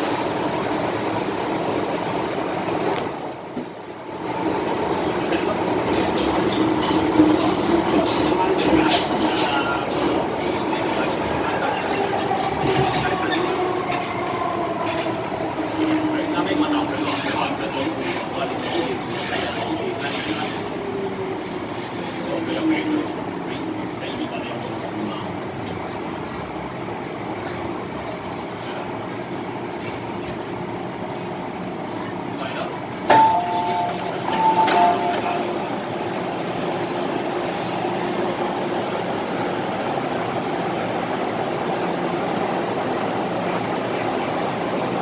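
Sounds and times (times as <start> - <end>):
train rail and running noise: 0.0 - 45.0
high-pitched brake squeal: 27.8 - 28.9, 29.9 - 31.3.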